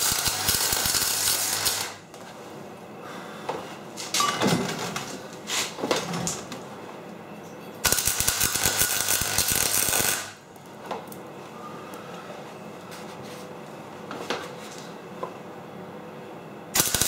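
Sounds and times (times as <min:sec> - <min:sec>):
welder arc crackling: 0:00.0 - 0:02.0, 0:07.8 - 0:10.4, 0:16.8 - 0:17.0.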